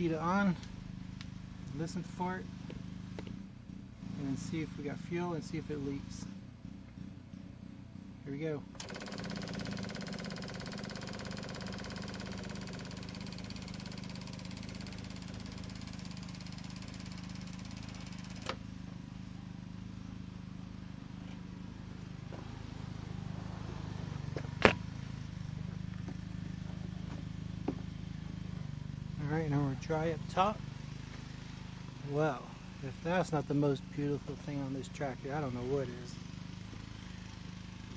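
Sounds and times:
electric fuel pump buzzing hum: 0:00.0 - 0:34.4.

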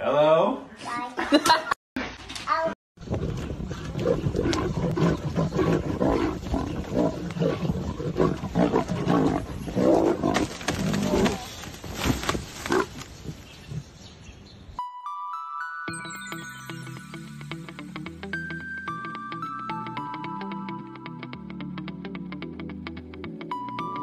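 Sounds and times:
lions growling: 0:03.1 - 0:11.5.

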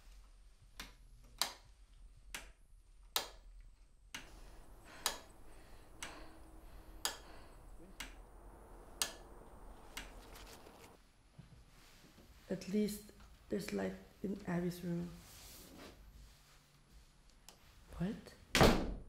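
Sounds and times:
clock ticking: 0:04.1 - 0:10.2.

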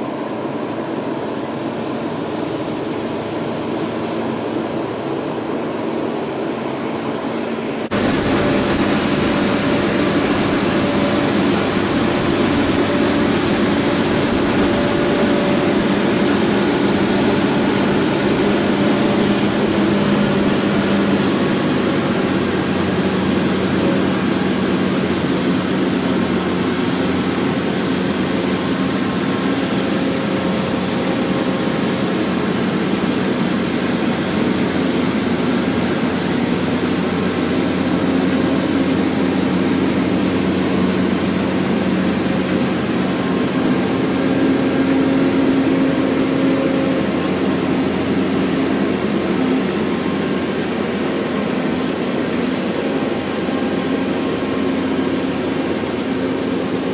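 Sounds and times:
diesel engine low drone: 0:00.0 - 0:56.9.

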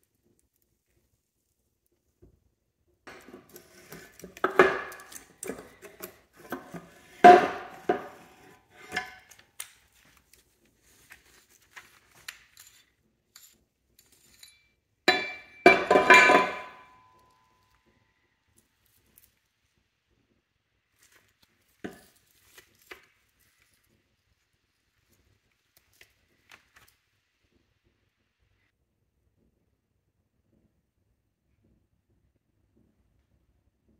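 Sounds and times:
steel gears clinking and knocking: 0:03.1 - 0:09.4, 0:12.2 - 0:17.2.

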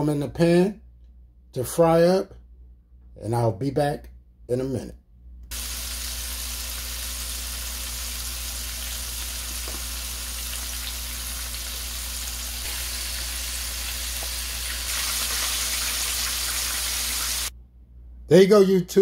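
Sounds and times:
chicken frying in oil: 0:05.5 - 0:17.5
oil crackling: 0:05.5 - 0:17.5.

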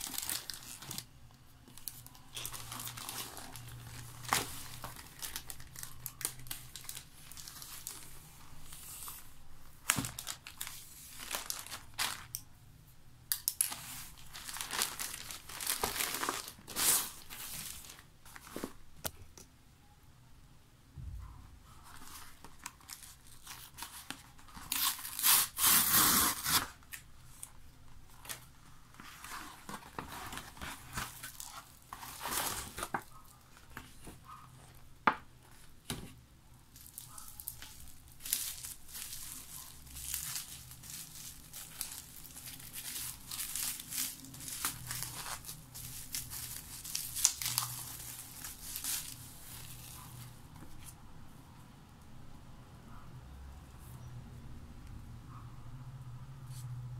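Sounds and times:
bubble wrap crinkling: 0:00.0 - 0:12.4, 0:13.3 - 0:18.9, 0:21.8 - 0:36.0, 0:36.6 - 0:51.0
paper mailer ripping open: 0:24.7 - 0:26.8.

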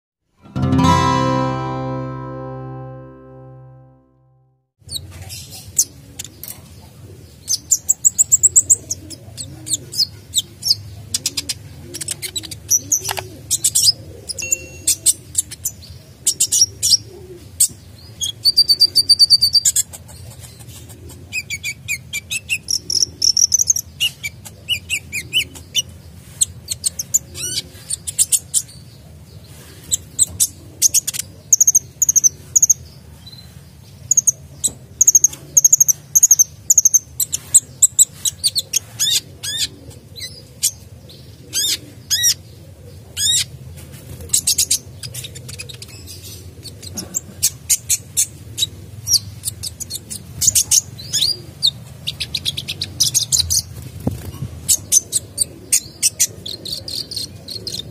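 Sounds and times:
bird singing high chirps and trills: 0:14.4 - 0:15.9.

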